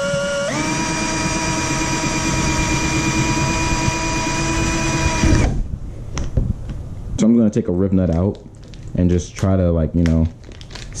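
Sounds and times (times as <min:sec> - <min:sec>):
electric drill whining: 0:00.0 - 0:05.6.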